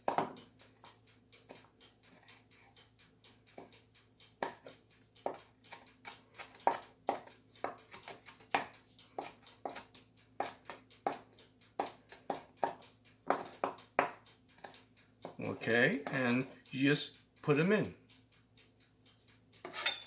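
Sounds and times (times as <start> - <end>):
knife chopping on wooden board: 6.4 - 9.8, 11.8 - 14.2.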